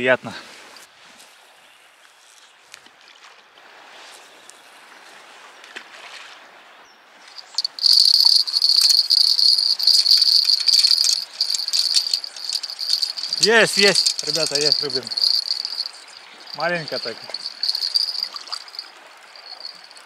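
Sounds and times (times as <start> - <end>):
faint outdoor background: 6.8 - 20.0
fishing reel whirring: 7.5 - 18.8.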